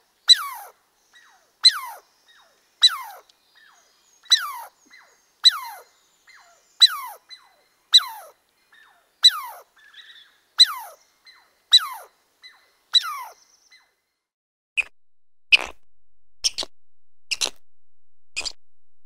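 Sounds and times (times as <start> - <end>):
squirrel chirping alarm call: 0.3 - 14.0, 16.4 - 16.7.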